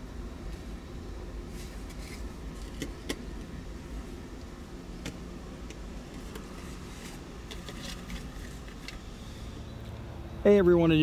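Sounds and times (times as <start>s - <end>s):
road vehicle rumble: 0.0s - 11.0s.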